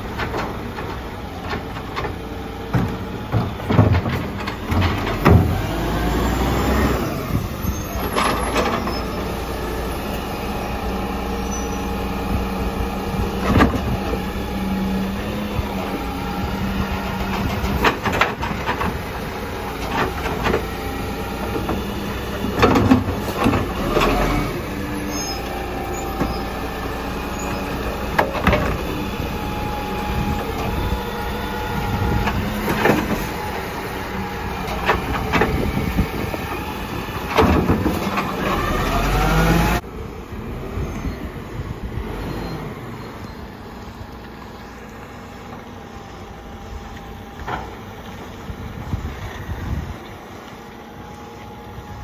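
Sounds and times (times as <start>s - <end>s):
bin and arm clanking: 0.0s - 5.9s
garbage truck engine running: 0.0s - 52.0s.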